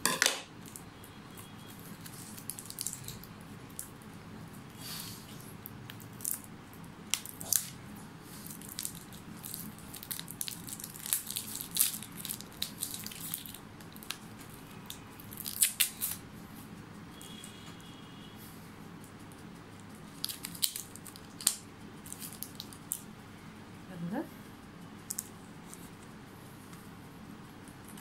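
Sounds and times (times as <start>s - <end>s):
plastic packaging crinkling: 0.6s - 4.0s, 8.4s - 16.2s, 20.1s - 23.1s.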